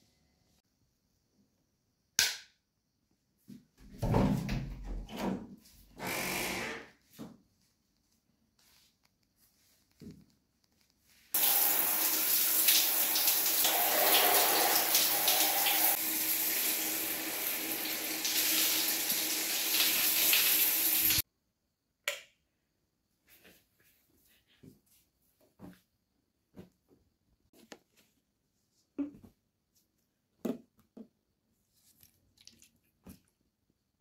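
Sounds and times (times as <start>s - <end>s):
tap water running into sink: 11.4s - 21.2s.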